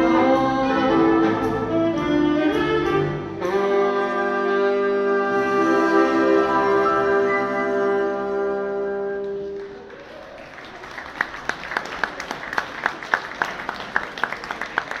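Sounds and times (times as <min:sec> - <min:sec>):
audience applause: 0:09.4 - 0:15.0.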